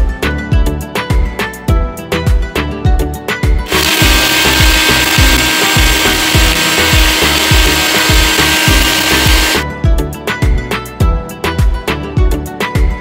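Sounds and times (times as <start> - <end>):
background music with steady beat: 0.0 - 13.0
blender grinding spices: 3.7 - 9.6.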